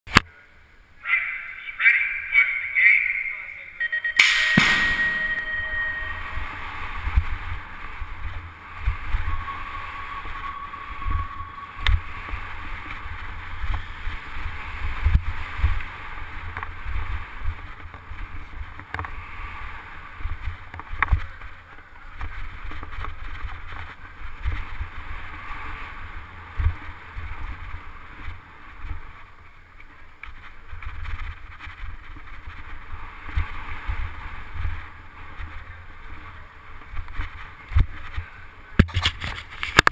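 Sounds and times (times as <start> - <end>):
high tone: 1.8 - 7.2, 8.6 - 13.8.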